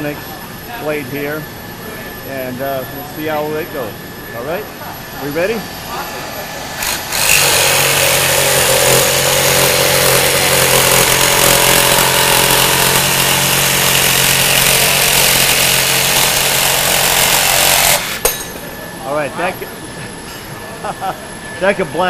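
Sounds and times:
jigsaw sawing through metal: 6.8 - 18.2.

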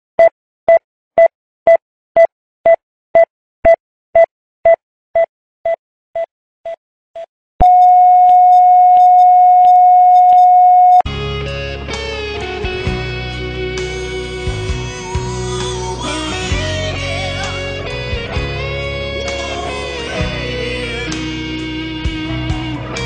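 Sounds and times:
heart monitor beeping: 0.2 - 11.0.

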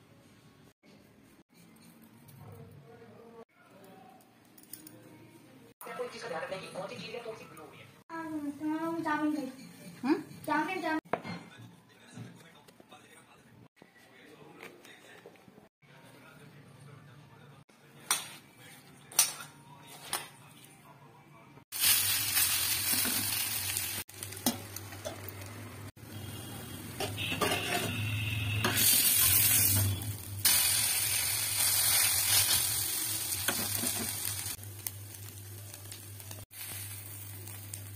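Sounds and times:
fritters sizzling in oil: 21.7 - 37.9.

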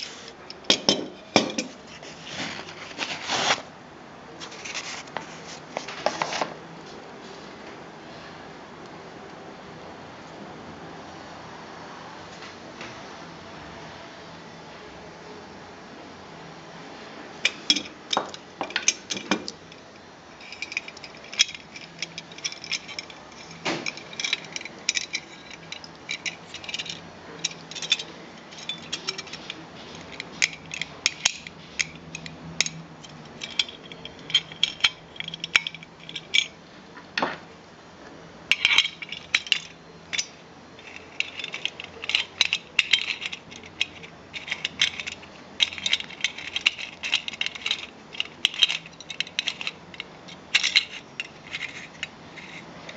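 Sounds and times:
metal clicks and clinks: 17.5 - 19.8, 20.4 - 36.6, 38.5 - 52.9.

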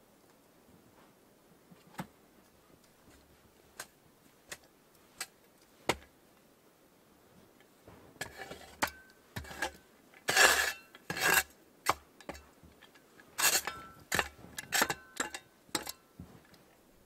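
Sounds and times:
shovel scraping snow: 13.4 - 14.9.

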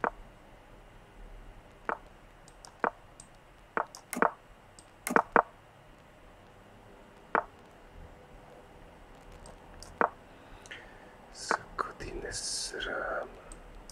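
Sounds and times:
short sharp clicks: 1.9 - 5.5, 11.4 - 11.7.

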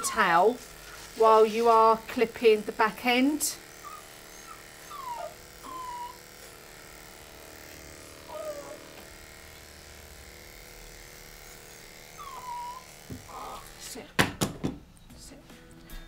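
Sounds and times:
electric dog clippers running: 0.0 - 14.1
puppy whining: 3.7 - 6.7, 7.8 - 9.2, 12.1 - 13.8.

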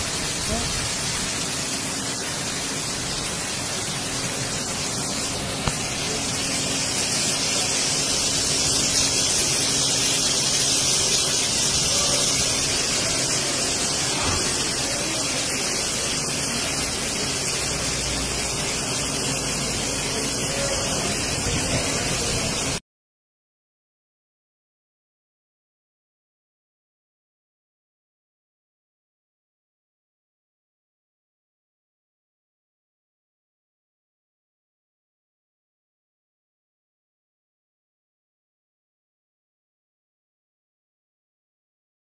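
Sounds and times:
heavy rain pouring: 0.0 - 22.8.

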